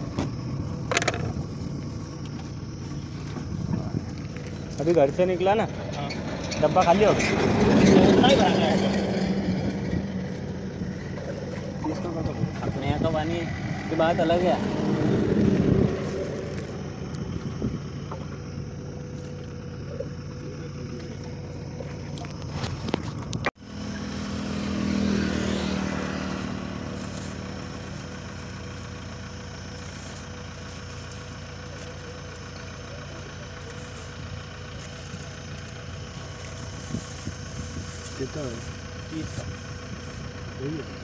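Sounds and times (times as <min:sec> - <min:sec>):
road traffic: 0:00.0 - 0:41.0
vehicle passing: 0:02.7 - 0:20.0, 0:23.6 - 0:28.8.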